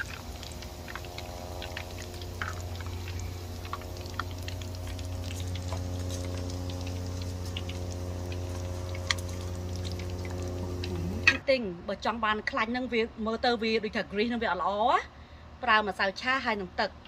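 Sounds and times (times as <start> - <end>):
oil bubbling and crackling in a wok: 0.0 - 11.4
steady low hum: 0.0 - 14.5.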